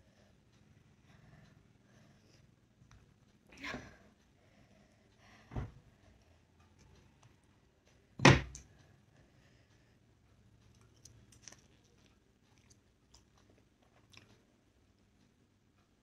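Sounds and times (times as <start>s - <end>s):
faint chewing with mouth clicks: 4.1s - 16.0s.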